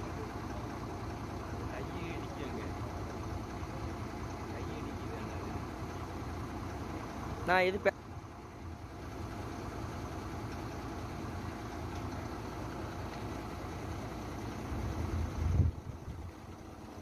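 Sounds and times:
truck diesel engine idling: 0:00.0 - 0:17.0
low rumble: 0:14.6 - 0:16.4.

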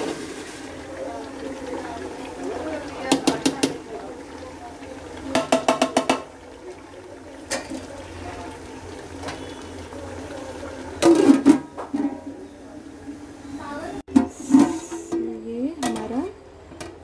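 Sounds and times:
curry sizzling and bubbling: 0:00.0 - 0:17.0
metal ladle tapping a pot: 0:03.1 - 0:03.8, 0:05.3 - 0:06.3.

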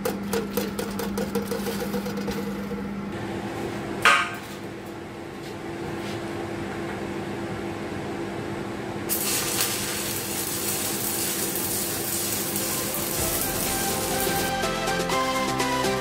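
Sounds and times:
arc welding crackling hiss: 0:09.1 - 0:15.0.

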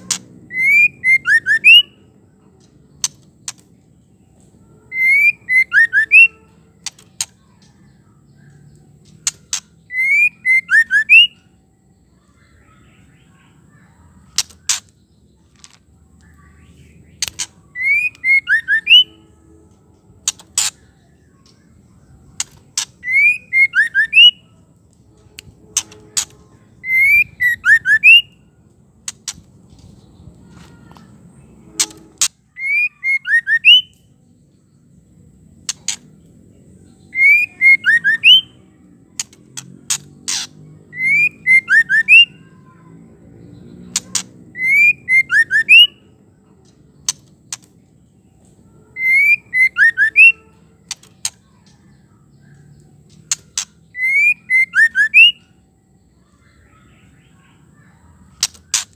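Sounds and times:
bird calling with clicks and whistles: 0:00.0 - 0:03.8, 0:04.8 - 0:11.6, 0:12.2 - 0:19.2, 0:22.3 - 0:24.6, 0:25.2 - 0:29.5, 0:31.7 - 0:34.1, 0:37.0 - 0:42.8, 0:43.9 - 0:55.6.

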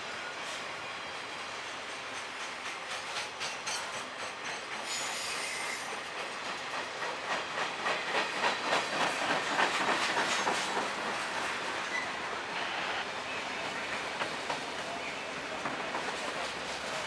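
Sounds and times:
freight train rumble: 0:00.0 - 0:17.0
train wheels clicking over rail joints: 0:01.6 - 0:17.0
high wheel squeal: 0:04.8 - 0:06.0, 0:11.8 - 0:13.0.

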